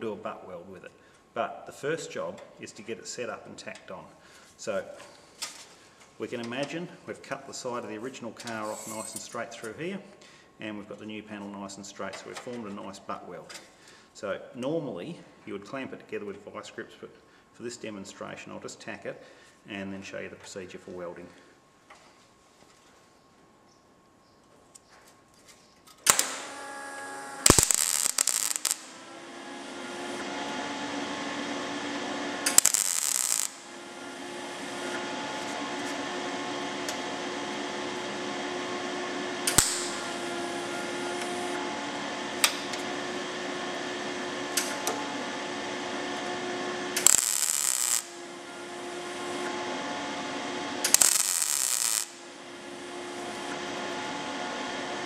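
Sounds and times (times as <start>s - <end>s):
welding arc crackling: 26.0s - 30.2s, 30.8s - 36.0s, 39.4s - 41.6s, 46.1s - 49.5s, 50.7s - 53.6s
welder hum: 26.0s - 55.0s.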